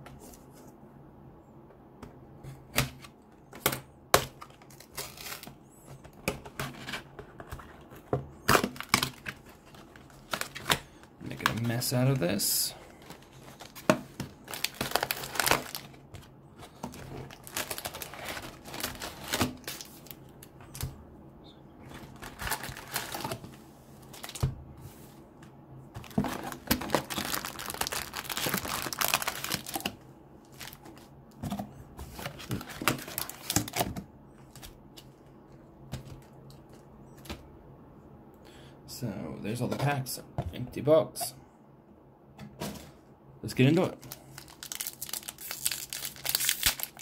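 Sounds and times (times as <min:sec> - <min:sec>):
card packs crinkling: 0:04.2 - 0:21.0, 0:21.8 - 0:24.5, 0:26.0 - 0:31.1, 0:32.0 - 0:35.2, 0:43.6 - 0:47.0.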